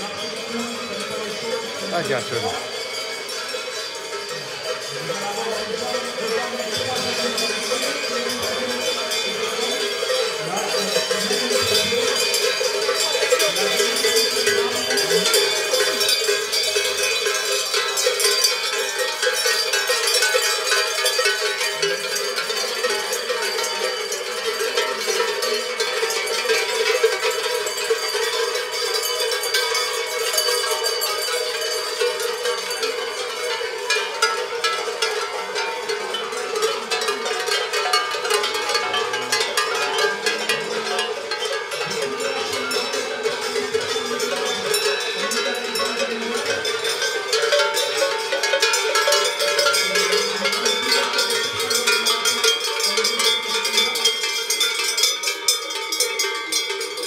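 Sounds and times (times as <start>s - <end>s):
cowbells clanking: 0.0s - 57.0s.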